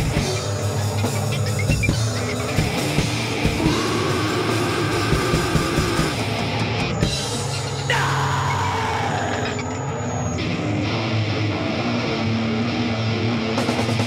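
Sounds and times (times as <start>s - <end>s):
distorted guitar and bass: 0.0s - 14.0s
drum hits: 1.7s - 7.4s.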